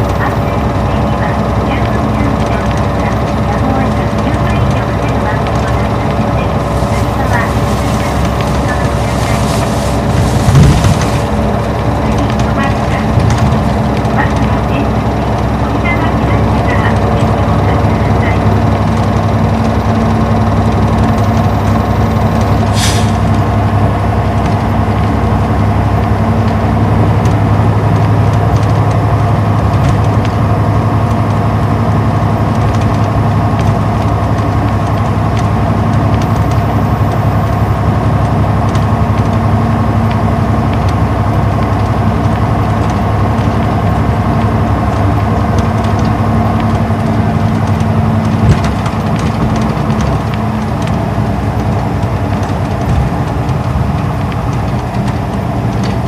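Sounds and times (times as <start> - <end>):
bus diesel engine running: 0.0 - 56.0
road noise: 0.0 - 56.0
short hiss: 22.7 - 23.3.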